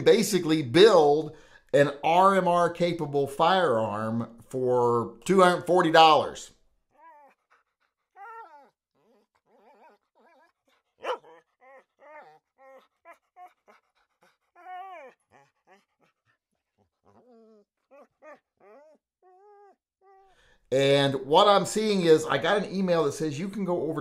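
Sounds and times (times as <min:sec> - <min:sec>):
puppy whining and whimpering: 0:06.9 - 0:16.0, 0:17.0 - 0:20.4.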